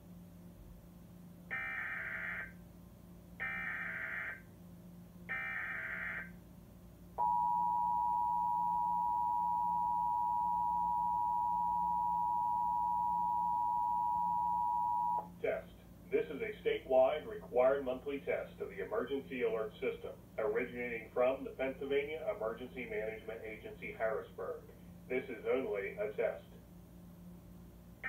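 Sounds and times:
two-tone attention signal: 7.2 - 15.2.

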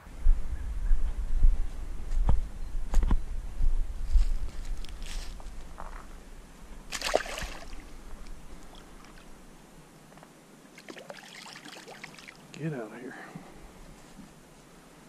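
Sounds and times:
fish splashing in water: 6.9 - 7.9, 10.8 - 12.4
water sloshing: 6.9 - 9.3, 10.7 - 12.5.

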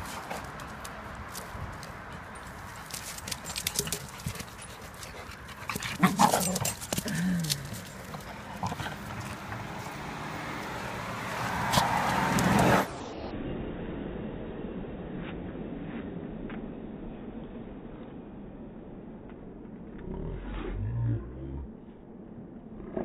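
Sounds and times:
dogs scuffling: 0.0 - 9.9
paws clicking on pavement: 0.0 - 12.9
dog panting: 2.2 - 9.8.

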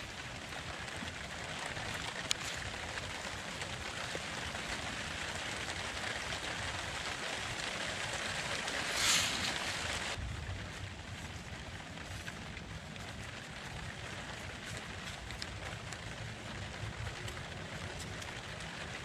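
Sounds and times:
hand smoothing wet mud: 8.8 - 10.0.

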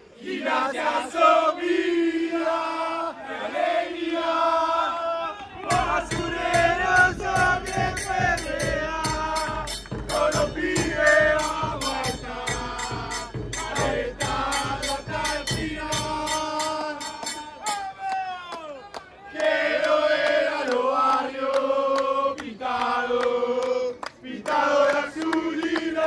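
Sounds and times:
crowd chanting in unison: 0.0 - 17.7, 19.3 - 26.0
bass drum beat: 5.7 - 17.4
cymbal: 5.7 - 17.6.

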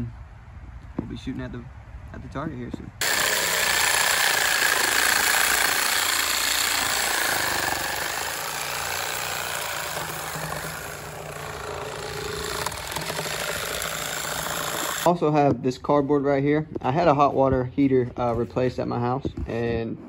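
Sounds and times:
reciprocating saw cutting wood: 3.0 - 15.1.

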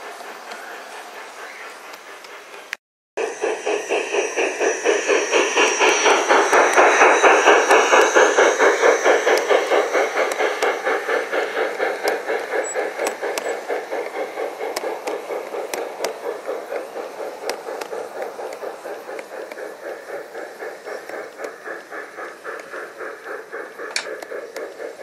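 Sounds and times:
model steam locomotive chuffing: 0.0 - 25.0
wheels clicking over rail joints: 21.0 - 25.0.

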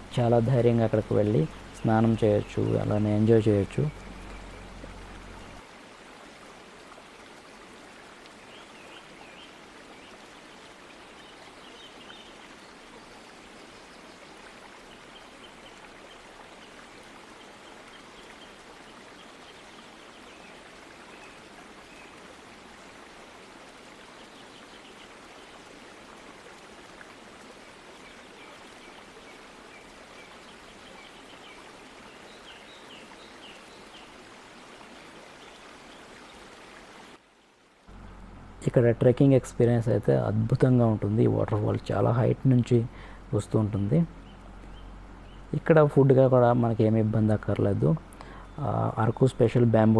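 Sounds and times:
waterfall splashing over rocks: 14.3 - 38.0.

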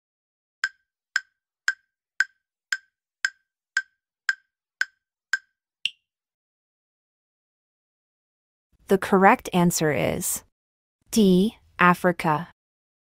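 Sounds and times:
timer ticking woody clicks: 0.6 - 5.5.

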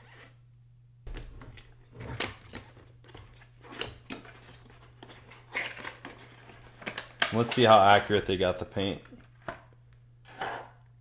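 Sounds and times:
cardboard box packaging rustling: 1.6 - 8.1.

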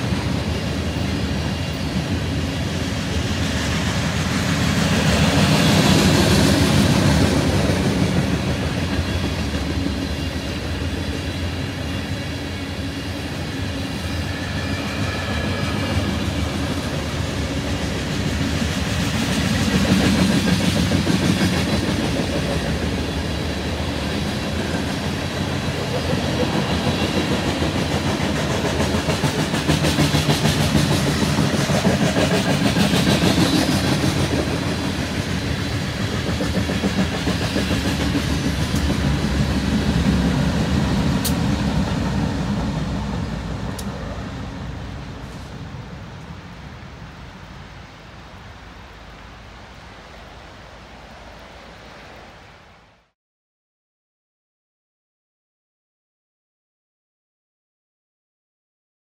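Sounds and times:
freight train wheels clattering: 0.0 - 44.2.

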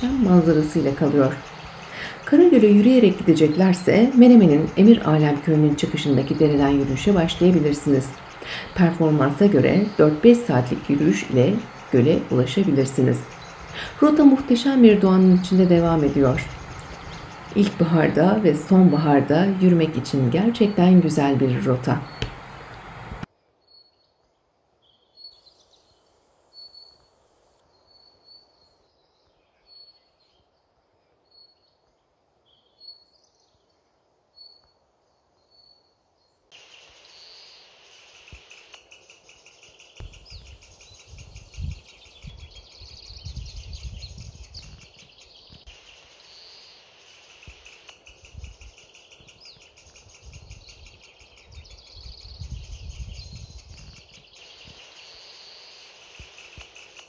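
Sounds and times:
high insect chorus: 0.0 - 21.0, 36.5 - 57.0
low rumbling wind gusts: 0.0 - 23.3, 39.7 - 45.7, 47.3 - 55.0.

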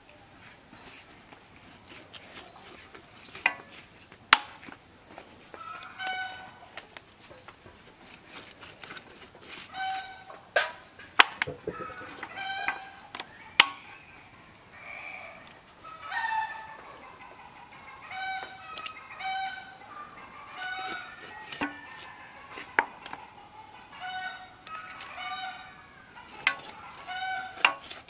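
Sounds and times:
chickens clucking: 5.4 - 8.0, 9.4 - 28.0.

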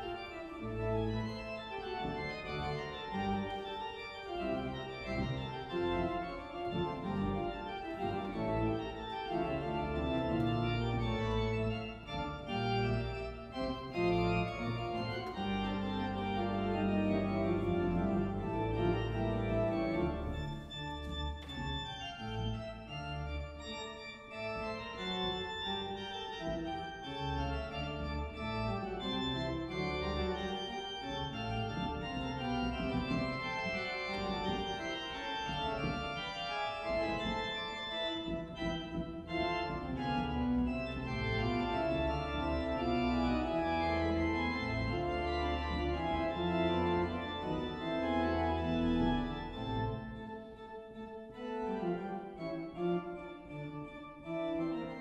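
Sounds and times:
church organ playing chords: 0.0 - 55.0.

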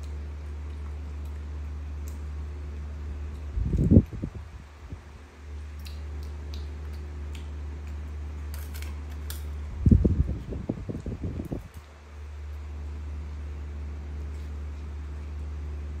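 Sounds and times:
steady low hum: 0.0 - 16.0
monkey chewing clicks: 5.6 - 9.5.

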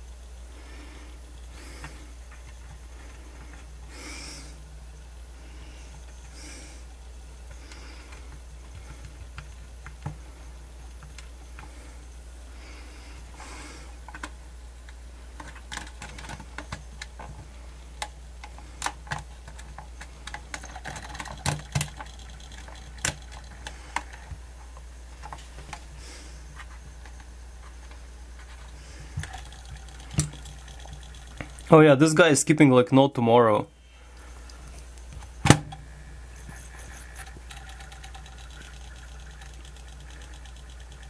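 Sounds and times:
steady low hum: 0.0 - 41.0
handling clicks and ticks: 18.0 - 25.8, 28.6 - 32.0, 36.3 - 41.0.

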